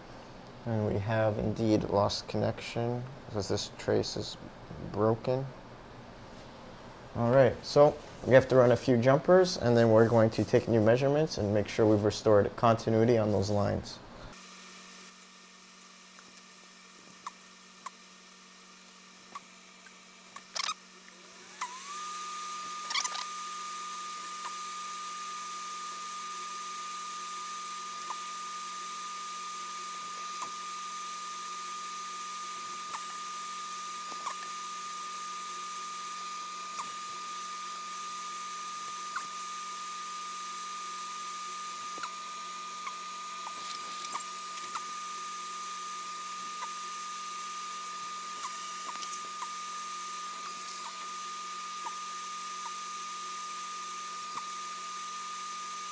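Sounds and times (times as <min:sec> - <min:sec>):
small electric motor whining: 0:14.3 - 0:55.9.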